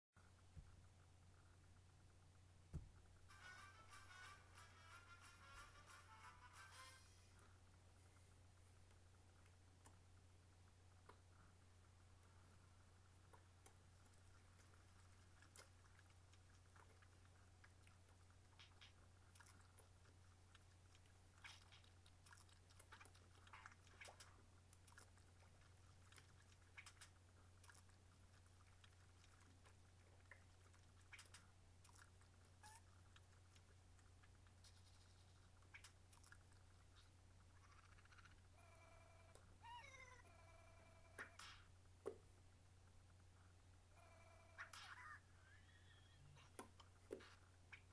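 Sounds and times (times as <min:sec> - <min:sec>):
faint clicks and taps: 0:02.6 - 0:03.2, 0:08.7 - 0:10.3, 0:10.9 - 0:12.4, 0:41.2 - 0:42.4, 0:46.4 - 0:47.9.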